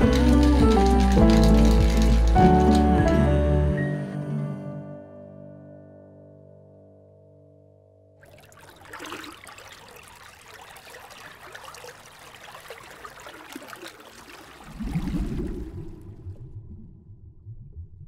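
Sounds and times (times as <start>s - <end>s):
music: 0.0s - 8.2s
water trickling: 8.2s - 17.0s
deep water gurgling: 8.2s - 18.0s.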